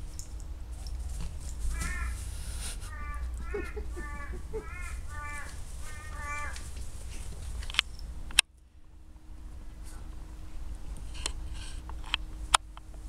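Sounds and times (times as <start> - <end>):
faint steady hum: 0.0 - 13.0
bird cawing: 1.7 - 7.3.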